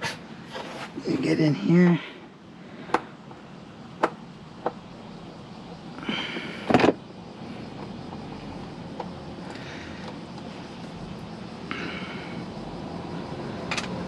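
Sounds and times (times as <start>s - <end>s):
plastic scrape: 0.4s - 1.0s.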